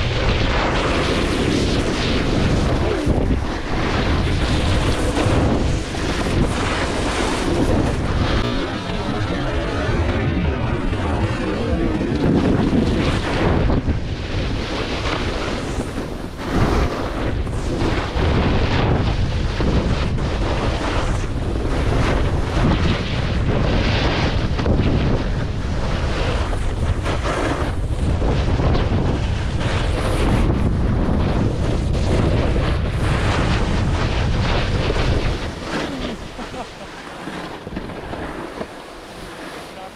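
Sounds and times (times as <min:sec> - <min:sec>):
wind on microphone: 0:00.0 - 0:39.9
skis carving across snow: 0:00.7 - 0:13.8, 0:14.4 - 0:22.7, 0:26.1 - 0:28.8, 0:33.0 - 0:39.9.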